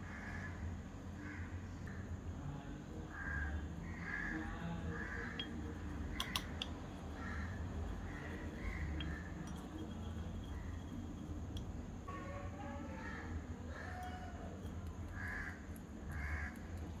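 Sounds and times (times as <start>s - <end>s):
crows cawing: 0.0s - 0.6s, 1.2s - 1.6s, 3.1s - 5.6s, 7.1s - 9.4s, 13.0s - 14.5s, 15.1s - 16.7s
steady low hum: 0.0s - 17.0s
sharp clicks: 5.4s - 6.8s.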